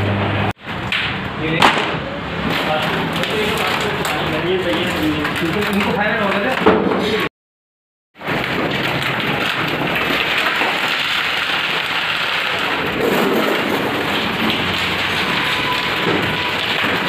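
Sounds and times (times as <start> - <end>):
steel sheet unrolling and rattling: 2.4 - 6.6, 8.2 - 17.0.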